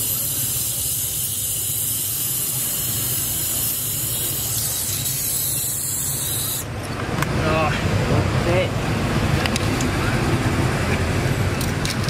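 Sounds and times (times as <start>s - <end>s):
torch flame hissing: 0.0s - 6.7s.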